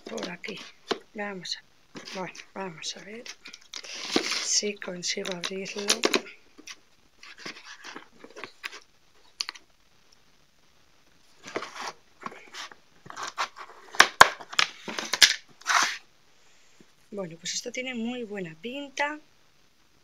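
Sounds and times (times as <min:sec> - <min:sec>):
plastic lid creaking and clicking: 0:00.0 - 0:01.1, 0:05.2 - 0:09.6.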